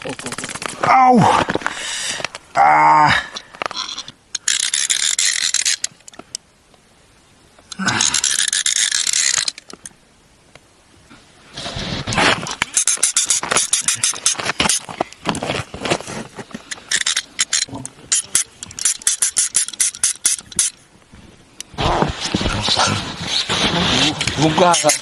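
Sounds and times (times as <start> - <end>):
fishing reel clicking: 4.4 - 5.9.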